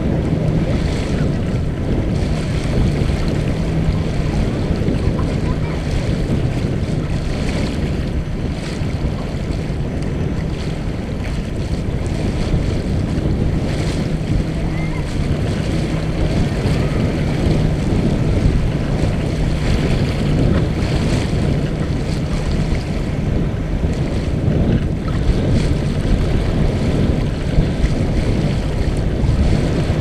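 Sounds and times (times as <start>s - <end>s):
bow waves splashing: 0.0s - 30.0s
water rushing along hull: 0.0s - 30.0s
wind buffeting microphone: 0.0s - 30.0s.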